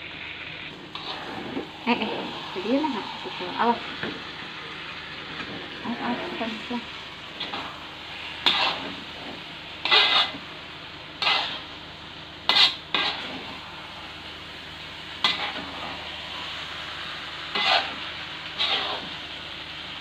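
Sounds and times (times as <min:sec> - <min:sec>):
frying sizzle: 0:00.0 - 0:20.0
spatula scraping wok: 0:00.8 - 0:14.4, 0:15.1 - 0:19.4.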